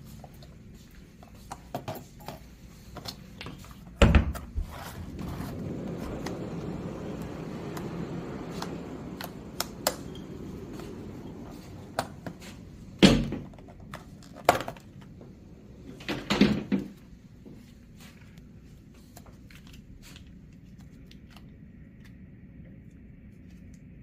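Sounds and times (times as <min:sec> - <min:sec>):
low rushing noise: 0:04.6 - 0:14.0
door or cabinet clicks and knocks: 0:16.0 - 0:17.0.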